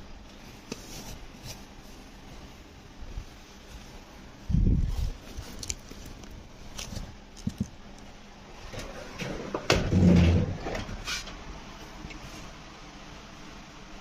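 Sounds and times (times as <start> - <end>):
clothes rustling: 0.2 - 8.2.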